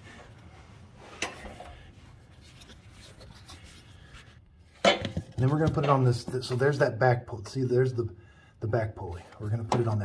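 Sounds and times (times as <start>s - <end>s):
rubbing and handling noise: 0.0s - 6.9s.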